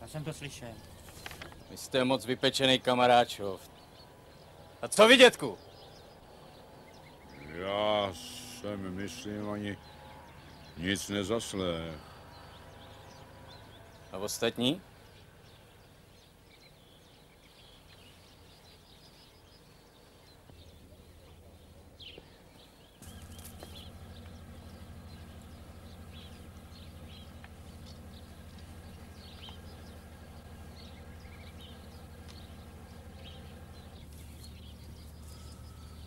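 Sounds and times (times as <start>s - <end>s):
birds chirping: 0.0s - 36.0s
steady low hum: 23.0s - 36.0s.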